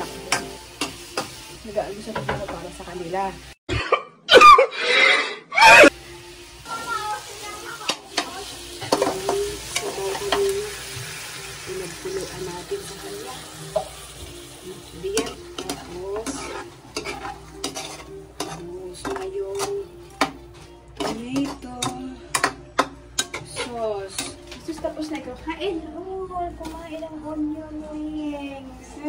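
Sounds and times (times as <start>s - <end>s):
food sizzling in a wok: 0.0s - 3.6s, 5.9s - 25.2s
spatula scraping a pan: 15.0s - 24.5s.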